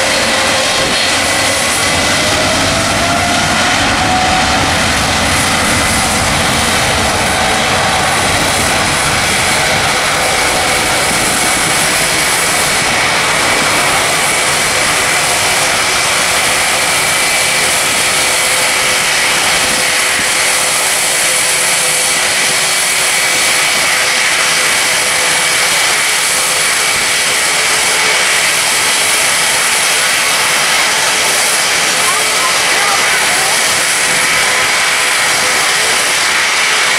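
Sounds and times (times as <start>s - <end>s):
jet engines at takeoff power: 0.0s - 36.9s.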